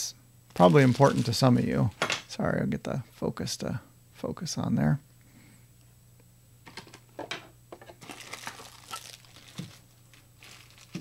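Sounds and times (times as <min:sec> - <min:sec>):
cardboard packaging rustling: 0:00.5 - 0:01.7, 0:08.0 - 0:11.0.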